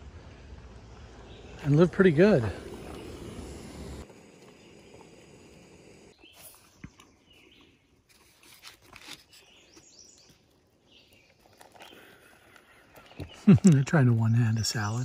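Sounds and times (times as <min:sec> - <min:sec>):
bird chirps: 0:06.1 - 0:07.9.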